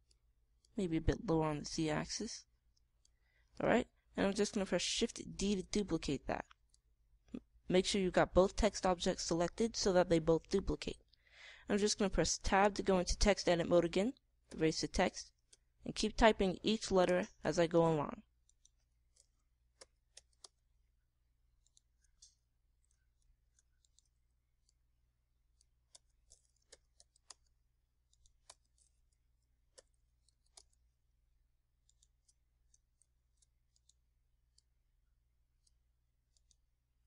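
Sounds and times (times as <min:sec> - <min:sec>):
computer mouse clicks: 0:18.5 - 0:20.6, 0:21.6 - 0:24.8, 0:25.5 - 0:30.8, 0:31.8 - 0:34.7, 0:35.6 - 0:36.6.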